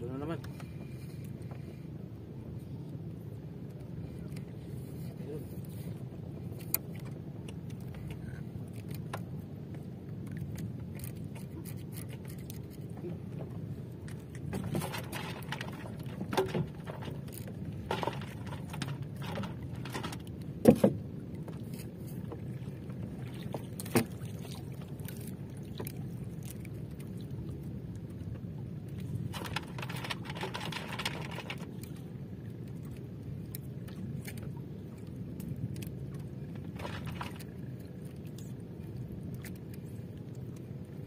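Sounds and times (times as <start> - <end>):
water washing around boat: 0.0 - 41.0
sharp knocks in boat: 14.4 - 17.2, 17.8 - 21.6, 23.4 - 24.6.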